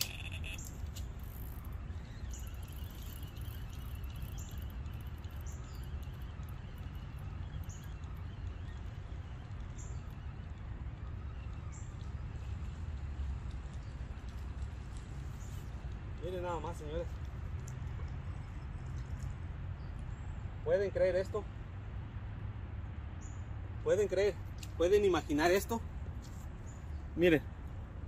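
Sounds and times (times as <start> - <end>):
steady low rumble: 0.0 - 20.7.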